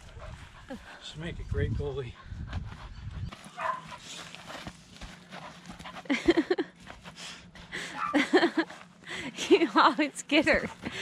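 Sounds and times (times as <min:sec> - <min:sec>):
dog barking: 0:03.6 - 0:04.0.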